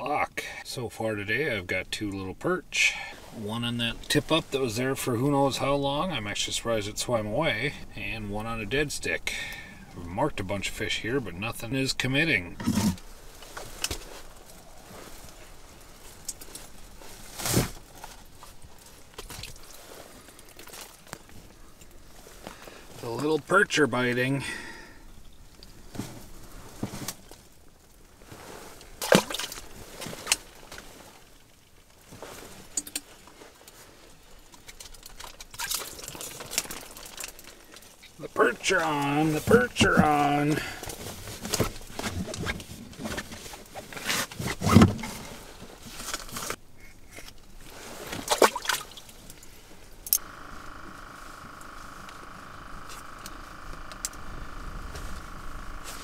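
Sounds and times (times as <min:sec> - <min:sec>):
faint steady hum: 0:00.0 - 0:56.0
water splashing: 0:28.9 - 0:30.4, 0:48.0 - 0:49.5
water splashing and dripping: 0:48.2 - 0:49.2.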